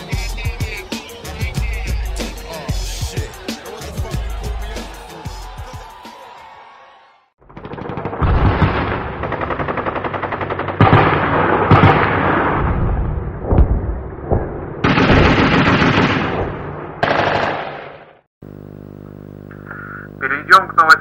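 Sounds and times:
machine-gun bursts: 7.5s - 11.8s, 14.9s - 16.3s, 17.0s - 18.0s
single gunshots: 14.8s - 18.2s
steady electrical hum: 18.4s - 21.0s.

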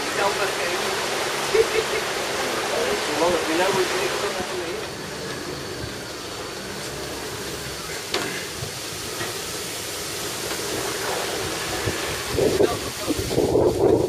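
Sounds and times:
boat rushing through water: 0.0s - 14.0s
wind buffeting microphone: 11.3s - 14.0s.

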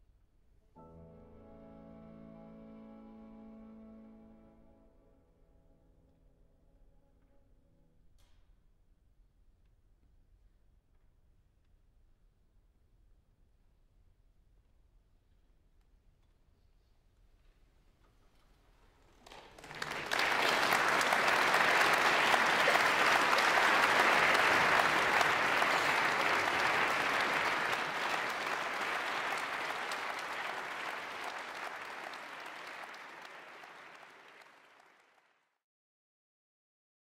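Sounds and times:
audience applauding: 19.2s - 35.4s.

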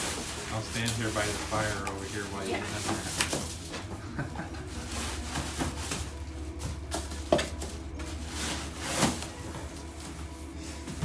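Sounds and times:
cardboard scraping and rustling: 4.7s - 11.0s.

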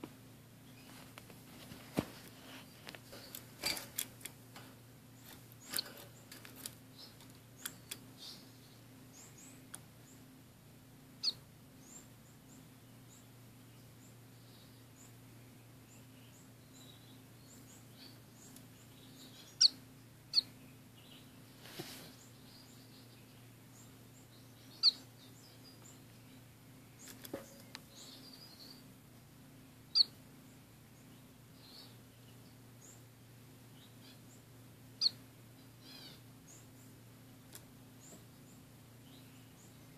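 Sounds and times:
finches chirping: 11.2s - 15.2s, 15.8s - 21.5s, 22.1s - 28.9s, 29.8s - 33.1s, 33.7s - 39.9s.

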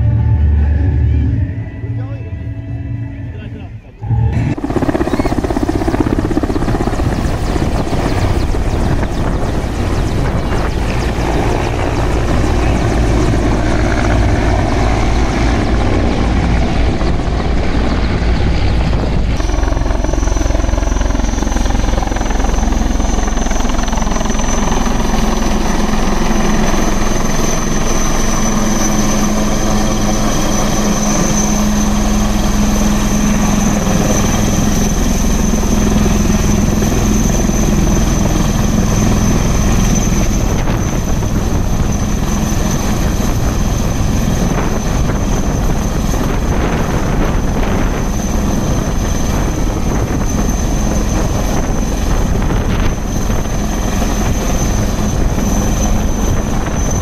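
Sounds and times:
helicopter rotor and turbine noise: 0.0s - 57.0s
high turbine whine: 0.0s - 57.0s
low hum: 0.0s - 57.0s.

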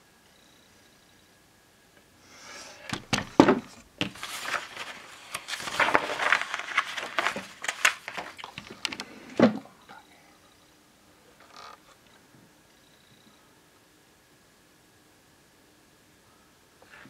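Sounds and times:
magazine pages turning: 2.9s - 9.6s.

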